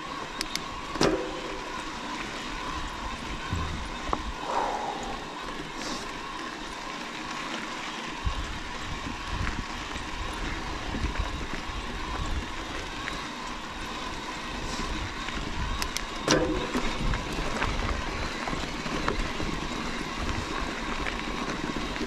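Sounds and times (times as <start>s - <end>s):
bike rattles and clicks: 0.0s - 22.0s
bike tyres on gravel: 0.0s - 22.0s
low rumble: 3.4s - 6.2s.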